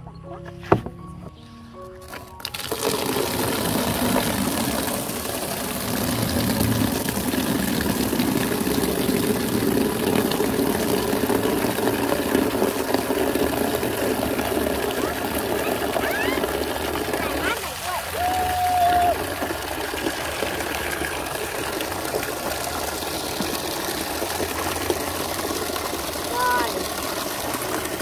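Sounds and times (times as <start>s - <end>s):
water pouring into plastic tub: 1.9s - 28.0s.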